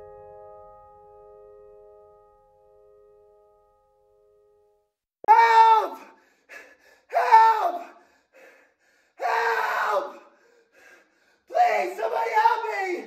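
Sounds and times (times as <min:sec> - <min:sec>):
man wailing: 0:05.3 - 0:06.1, 0:07.1 - 0:07.9, 0:11.5 - 0:13.0
gasping breaths: 0:06.0 - 0:07.1, 0:07.8 - 0:09.2, 0:10.1 - 0:11.5.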